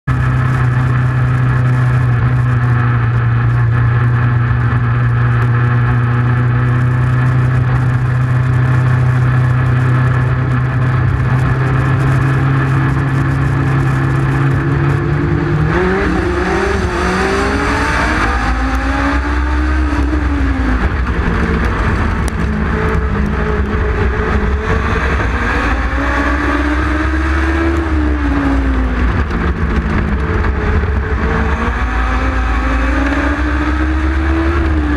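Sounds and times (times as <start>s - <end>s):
motorcycle engines running loud: 0.0s - 34.9s.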